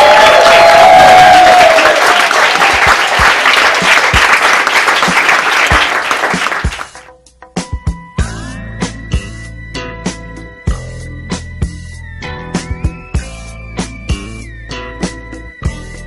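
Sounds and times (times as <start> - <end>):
crowd applauding: 0.0 - 7.1.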